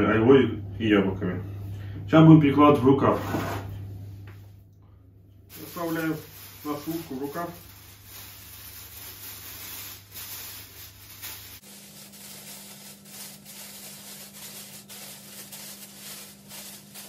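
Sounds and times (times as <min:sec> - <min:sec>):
plastic sleeve rustling and crinkling: 0:05.5 - 0:17.0.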